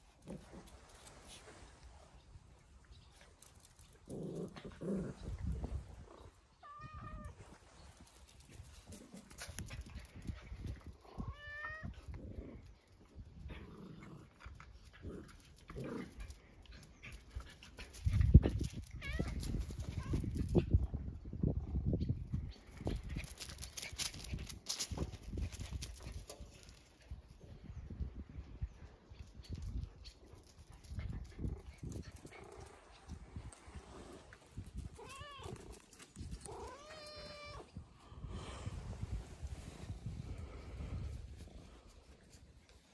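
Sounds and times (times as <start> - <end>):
cat meowing: 6.6 - 7.4, 35.0 - 35.6, 36.6 - 37.7.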